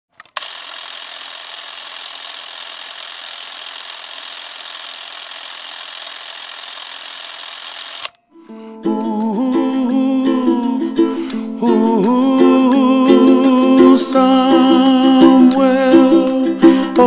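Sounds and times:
ukulele music: 8.3 - 17.0.

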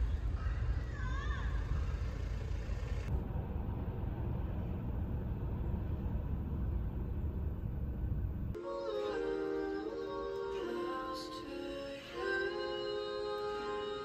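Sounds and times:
traffic rumble: 0.0 - 8.6.

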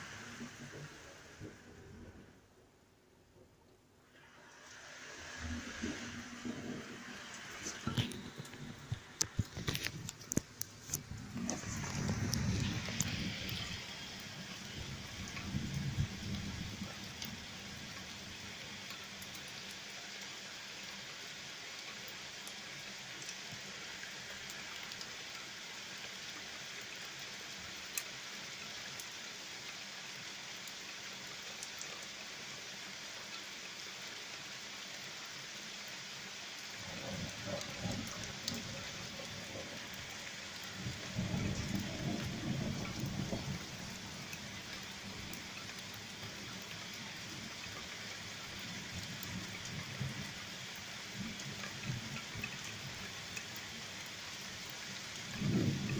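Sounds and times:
steady rain hiss: 0.0 - 55.9
rolling thunder: 11.0 - 17.3, 40.7 - 44.0, 55.4 - 55.9.

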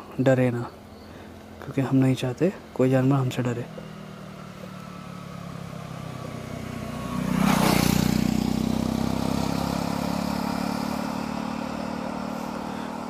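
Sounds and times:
vehicle engine revving: 2.6 - 13.0.

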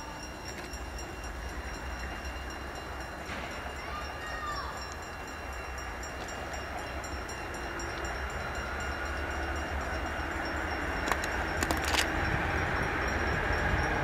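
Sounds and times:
diesel locomotive engine rumbling: 0.0 - 14.0
sharp clicks: 11.0 - 12.2.

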